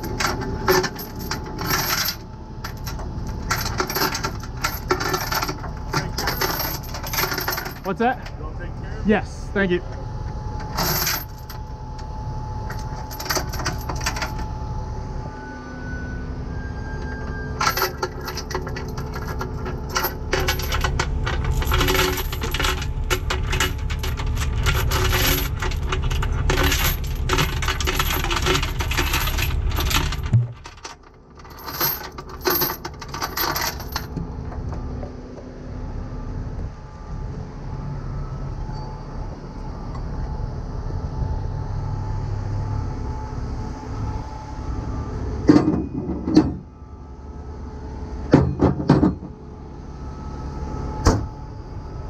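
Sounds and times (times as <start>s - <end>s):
steel chains clinking and rattling: 0.0s - 8.3s, 10.6s - 11.7s, 12.7s - 14.5s, 17.6s - 34.5s
low steady rumble: 0.0s - 52.0s.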